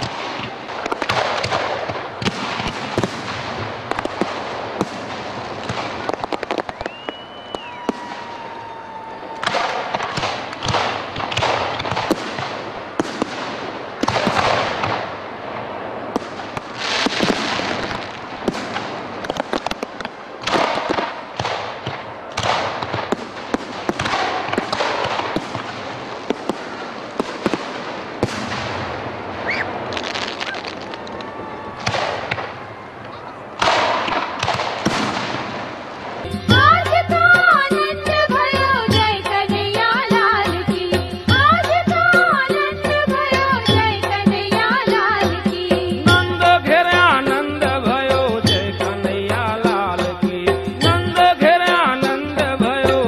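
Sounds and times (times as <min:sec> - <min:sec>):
fireworks crackling and popping: 0:00.0 - 0:36.6
firework whistle: 0:05.6 - 0:10.4, 0:29.4 - 0:32.6.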